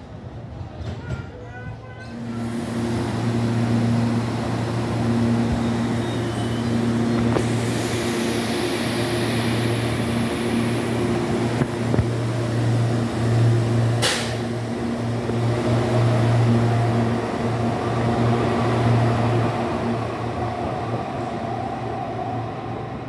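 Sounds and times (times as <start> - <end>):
electric train hum: 2.0 - 23.0
train motor whine rising: 2.3 - 20.3
short air hiss: 14.0 - 14.5.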